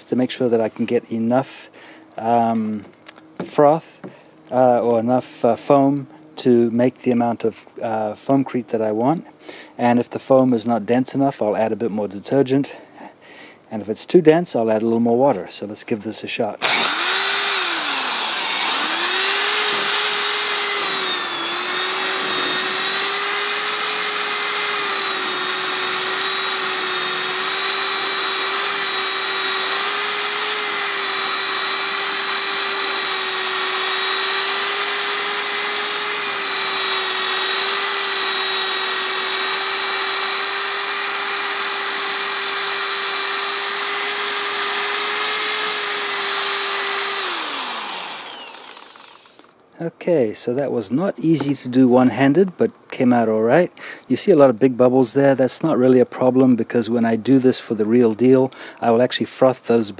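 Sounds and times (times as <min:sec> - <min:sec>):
electric drill whining: 0:16.6 - 0:49.6.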